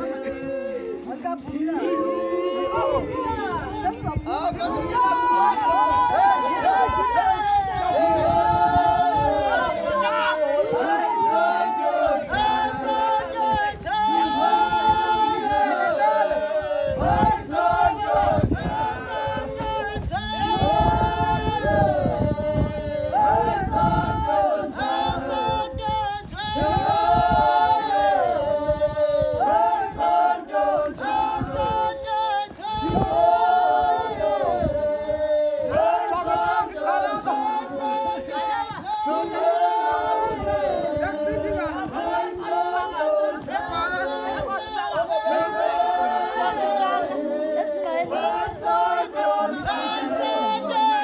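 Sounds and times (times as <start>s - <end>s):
women singing unaccompanied: 0.0s - 51.0s.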